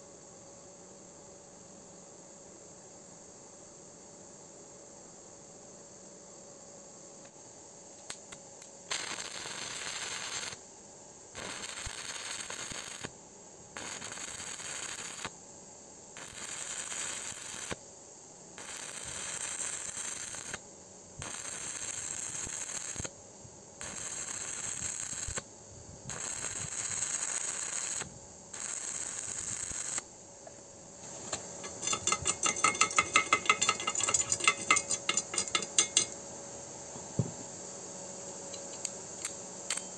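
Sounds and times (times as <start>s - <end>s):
welding arc crackling: 8.1s - 10.6s, 11.4s - 13.1s, 13.8s - 15.3s, 16.2s - 17.8s, 18.6s - 20.6s, 21.2s - 23.1s, 23.8s - 25.5s, 26.1s - 30.0s, 31.0s - 36.2s
chipping hammer tapping metal: 31.6s - 36.2s.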